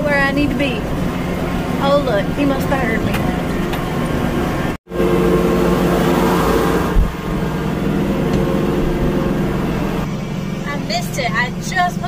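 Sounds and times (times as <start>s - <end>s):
tractor engine running: 0.0s - 12.0s
low thump: 6.9s - 7.3s.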